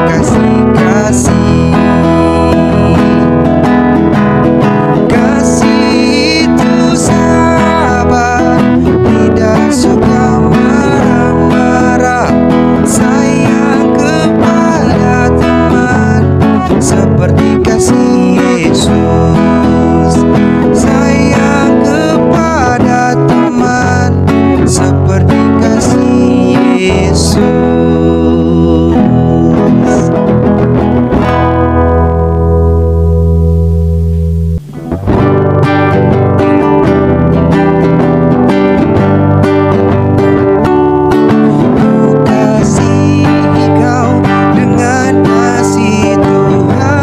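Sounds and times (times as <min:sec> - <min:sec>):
man singing: 0:00.0 - 0:30.5, 0:41.0 - 0:47.0
acoustic guitar strumming: 0:00.0 - 0:47.0.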